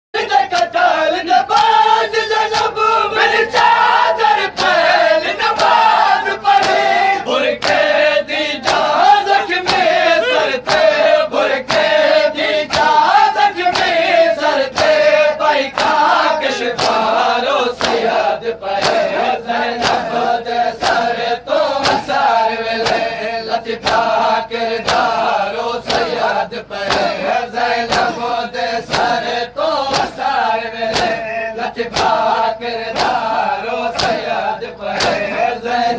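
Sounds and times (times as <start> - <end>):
men chanting in unison: 0.2 - 35.9
hands beating on chests: 3.4 - 7.0, 9.6 - 10.0, 12.6 - 14.0, 15.6 - 18.1, 18.8 - 19.2, 19.8 - 20.2, 20.8 - 21.1, 21.8 - 23.2, 25.8 - 26.2, 26.8 - 27.2, 27.8 - 28.2, 28.8 - 35.4.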